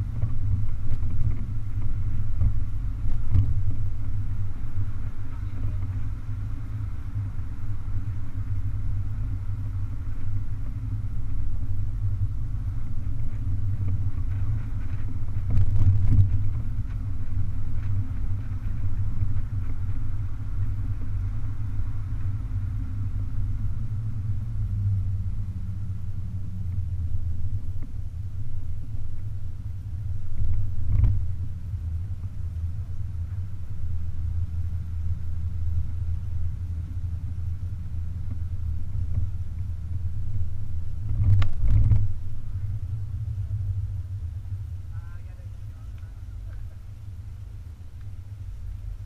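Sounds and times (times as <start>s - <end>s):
car low rumble: 0.0s - 49.0s
wind on open cabin: 0.0s - 49.0s.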